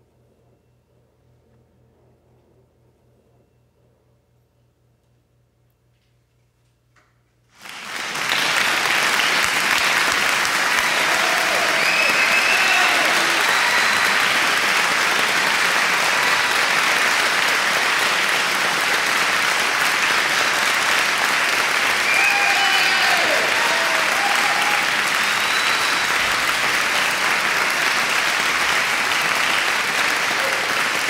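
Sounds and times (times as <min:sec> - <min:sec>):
audience applauding: 0:07.6 - 0:31.0.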